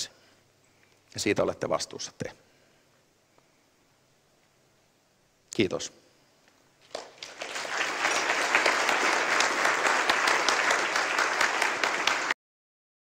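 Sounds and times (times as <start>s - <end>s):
audience applauding: 6.8s - 12.4s.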